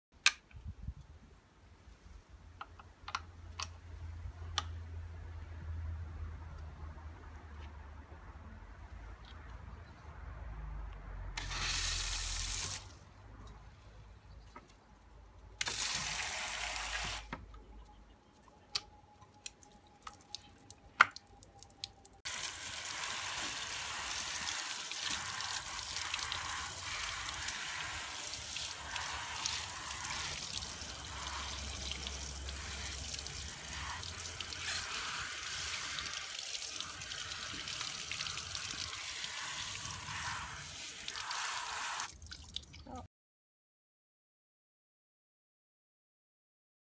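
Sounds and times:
shower spraying water on dog: 0:11.4 - 0:12.9, 0:15.7 - 0:17.2, 0:22.3 - 0:42.1
short spurts of spray: 0:11.4 - 0:13.0, 0:15.6 - 0:17.3, 0:22.3 - 0:42.1
water dripping: 0:18.4 - 0:40.1, 0:41.0 - 0:42.9.

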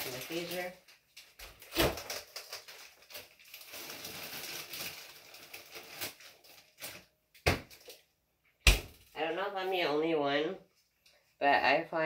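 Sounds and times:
plastic bag rustling: 0:00.0 - 0:08.0.

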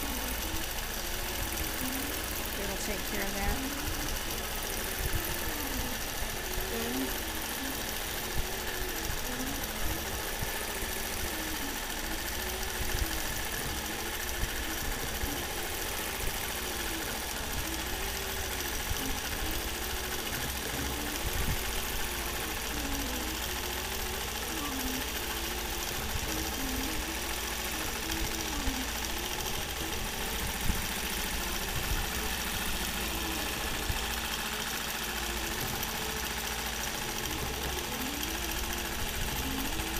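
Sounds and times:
quilting machine motor whine: 0:00.0 - 0:39.9.

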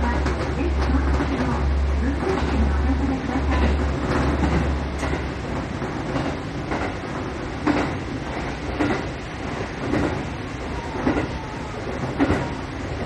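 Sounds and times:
train wheels knocking over rail joints: 0:02.3 - 0:10.4, 0:11.0 - 0:13.0.

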